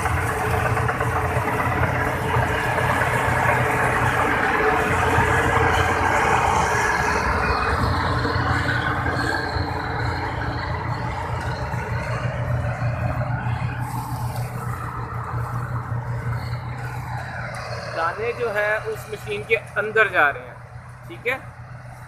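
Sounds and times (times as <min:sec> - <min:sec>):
combine harvester droning: 0:00.0 - 0:22.0.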